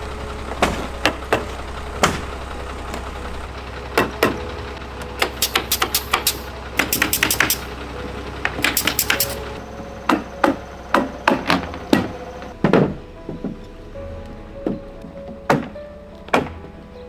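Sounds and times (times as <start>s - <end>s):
pneumatic staple gun firing: 5.2s - 7.7s, 8.6s - 9.4s.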